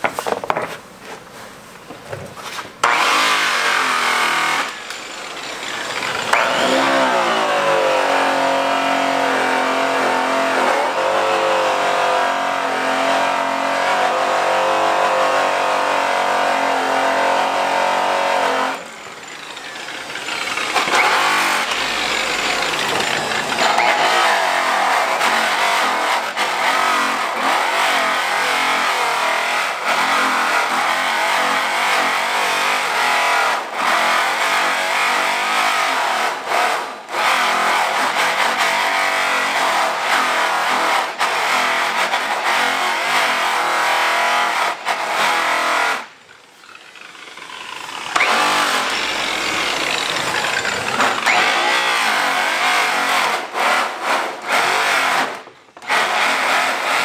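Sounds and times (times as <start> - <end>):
electric polisher motor whine: 2.8 - 11.2, 18.4 - 24.5, 46.4 - 52.7.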